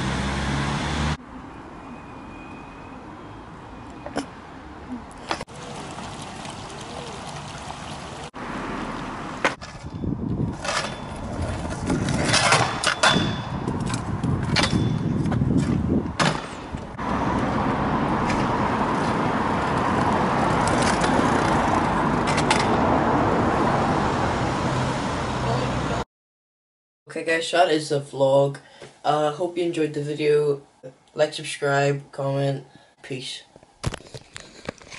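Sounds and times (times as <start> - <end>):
scooter wheels rolling on concrete: 5.2 - 23.2.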